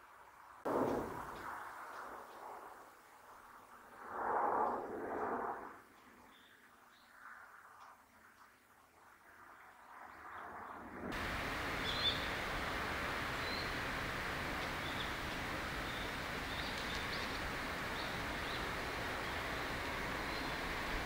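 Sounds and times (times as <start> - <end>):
outdoor background hiss: 0.0 - 9.9, 11.0 - 21.0.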